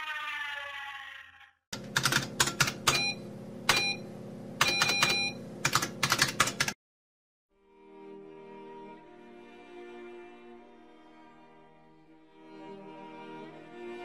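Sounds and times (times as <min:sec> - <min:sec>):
siren wailing: 0:00.0 - 0:01.5
steady hum: 0:01.8 - 0:06.6.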